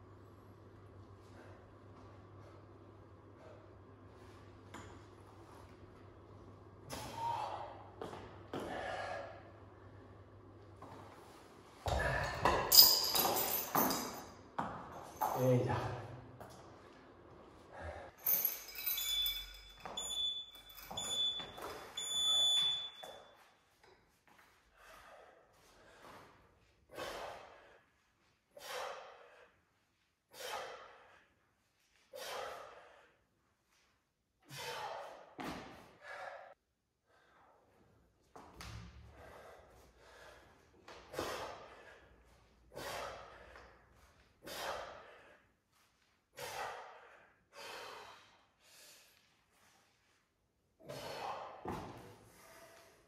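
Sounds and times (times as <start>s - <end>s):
man breathing hard: 8.5s - 9.6s, 17.7s - 18.4s, 24.7s - 33.3s, 34.4s - 37.7s, 39.0s - 45.6s, 46.3s - 49.4s, 50.8s - 53.0s
metal chain clinking: 12.2s - 14.4s, 18.2s - 23.1s.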